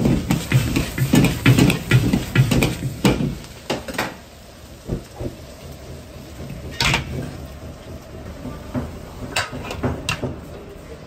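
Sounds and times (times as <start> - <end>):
gas burner roaring: 0.0 - 11.0.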